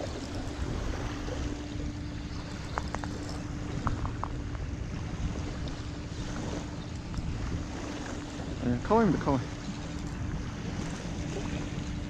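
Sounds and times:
steady low hum: 0.0 - 12.0
wind rumbling on microphone: 0.0 - 12.0.

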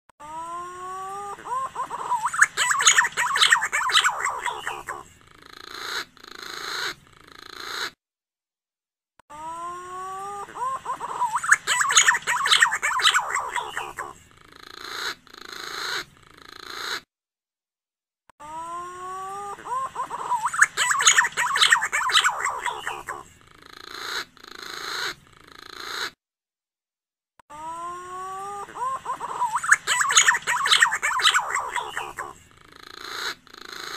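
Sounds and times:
pigeon calls: 1.2 - 8.0, 10.3 - 17.0, 19.4 - 26.2, 28.2 - 33.9
warbling bird whistles: 1.5 - 7.9, 10.6 - 17.0, 19.7 - 26.1, 28.8 - 33.9.

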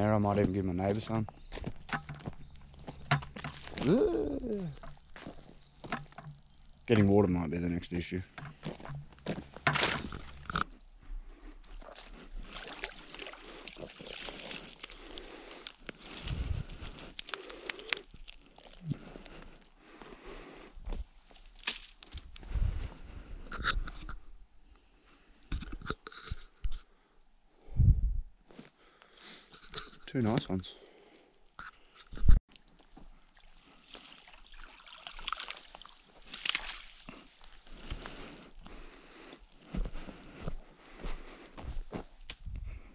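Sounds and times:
footsteps on dry sticks and leaves: 0.0 - 7.2, 8.2 - 10.8, 11.7 - 20.2, 20.9 - 23.0, 36.1 - 42.9
water sloshing and trickling: 11.7 - 16.5, 32.5 - 37.7.

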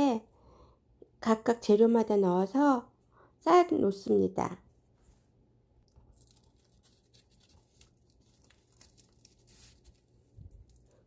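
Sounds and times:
seaweed sheets rustling and crinkling: 5.9 - 11.0.

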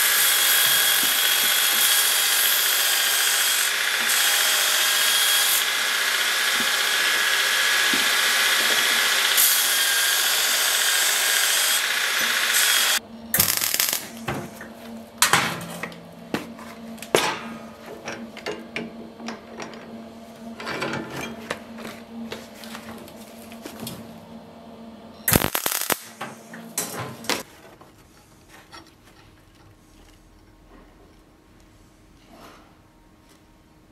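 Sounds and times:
grinder grinding steel: 0.0 - 15.1
steady low hum: 13.0 - 32.3
metal clanks and taps: 14.3 - 20.0.

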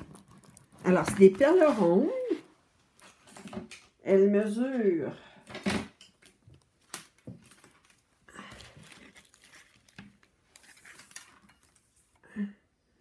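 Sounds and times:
canvas crinkling and rustling: 6.3 - 12.1.

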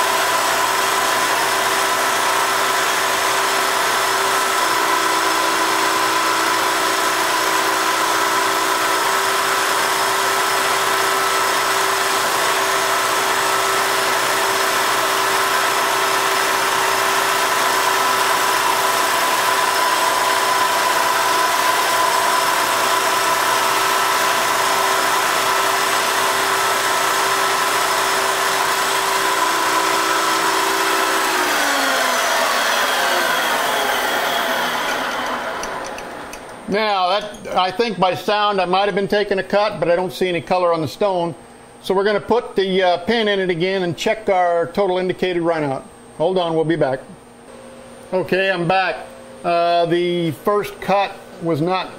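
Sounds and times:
lathe and grinder running: 0.0 - 37.4.

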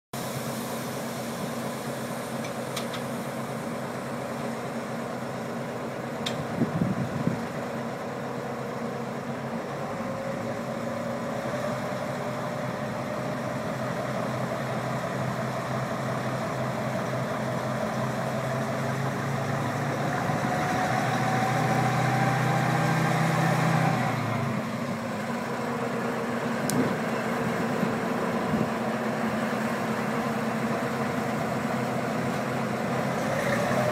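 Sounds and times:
diesel locomotive engine: 0.2 - 33.9
engine clatter: 9.7 - 33.9.

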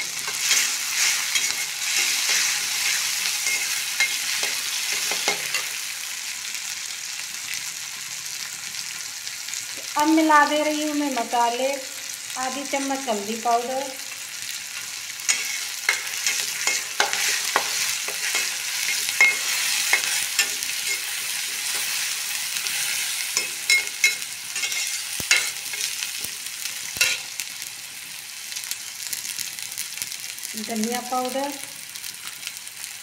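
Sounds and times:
metal spatula scraping pan: 0.0 - 5.8, 14.8 - 26.0
masala sizzling in oil: 0.0 - 33.0.

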